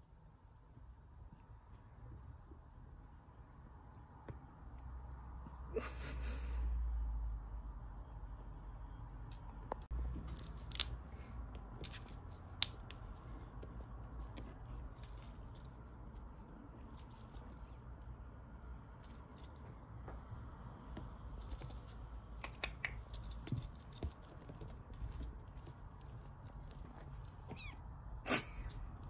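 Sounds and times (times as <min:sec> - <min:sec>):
kitten mewing: 0:27.5 - 0:28.7.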